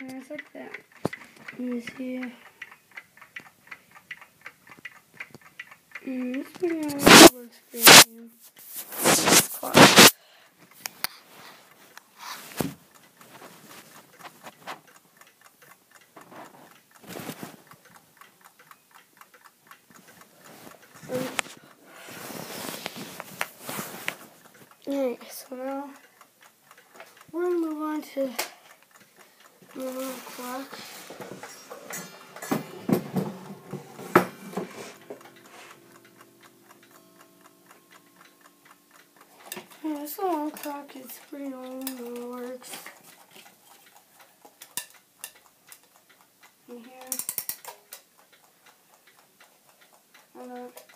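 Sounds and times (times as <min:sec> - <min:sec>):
pendulum clock ticking: 0:00.0 - 0:08.4, 0:09.2 - 0:50.9
clock being handled knocks: 0:29.8 - 0:36.2.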